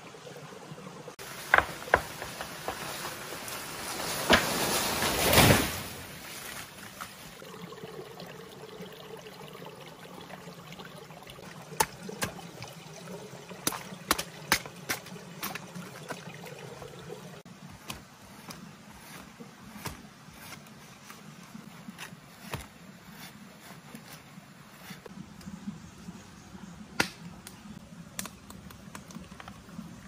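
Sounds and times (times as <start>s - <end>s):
water trickling and splashing: 0.0s - 30.0s
plant toppling with crash: 1.4s - 6.7s
water drips and taps: 7.0s - 17.4s.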